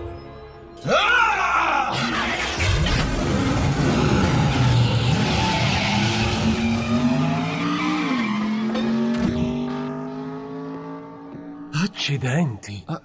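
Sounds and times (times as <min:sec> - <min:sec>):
tyres skidding: 0:02.0 - 0:12.1.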